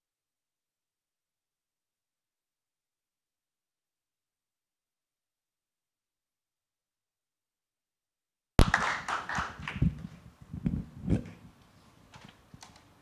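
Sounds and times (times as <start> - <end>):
microphone being handled: 9.7 - 12.4.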